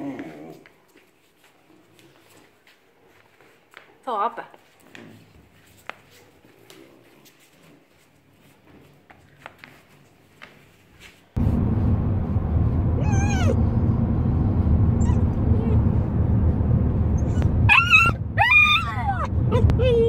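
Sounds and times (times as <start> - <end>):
car road rumble: 11.4 - 20.0
dog whining and yowling: 13.0 - 13.6, 14.9 - 15.8, 17.2 - 20.0.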